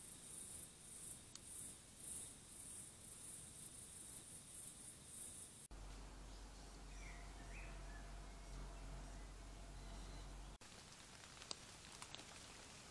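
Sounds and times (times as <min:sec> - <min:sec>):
low steady hum: 0:05.7 - 0:10.6.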